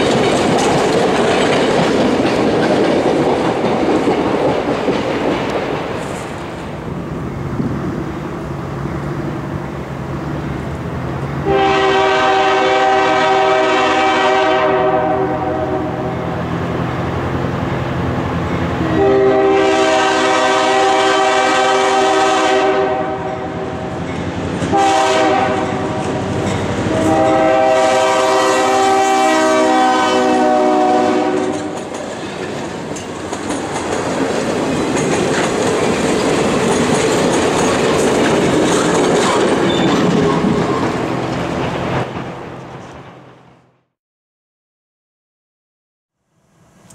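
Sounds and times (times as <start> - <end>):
train wheels clattering over rails: 0.0 - 6.8, 23.8 - 27.4, 31.2 - 43.2
locomotive air horn: 11.4 - 16.3, 18.8 - 23.6, 24.7 - 26.2, 26.8 - 31.8.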